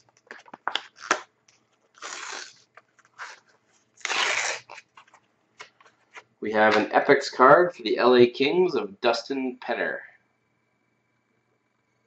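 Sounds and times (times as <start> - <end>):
card pack tearing: 0.4 - 1.2, 1.9 - 3.4, 4.0 - 5.9.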